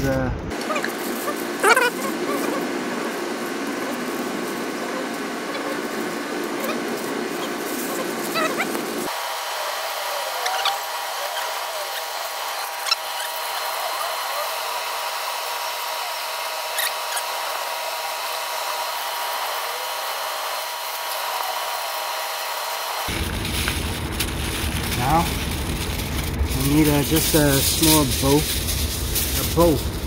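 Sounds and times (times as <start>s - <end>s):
high-pitched hum: 0.0s - 30.0s
foil crinkles and clicks: 23.1s - 30.0s.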